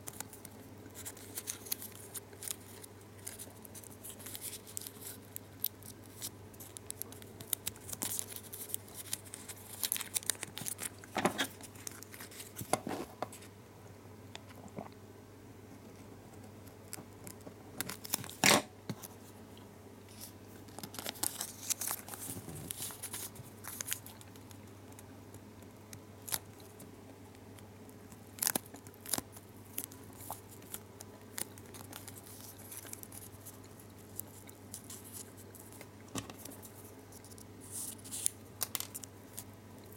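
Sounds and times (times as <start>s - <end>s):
foil wrapper crinkling: 0.0s - 13.4s, 17.8s - 19.2s, 20.1s - 24.6s, 28.1s - 39.9s.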